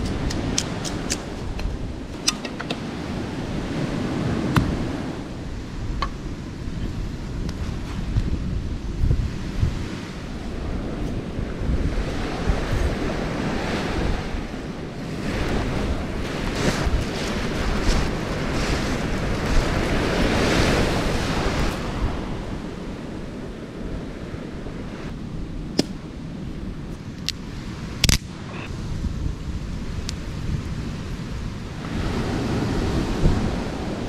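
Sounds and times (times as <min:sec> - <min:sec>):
surf breaking on shore: 0:00.0 - 0:26.7, 0:27.4 - 0:34.0
wind buffeting microphone: 0:00.0 - 0:34.0.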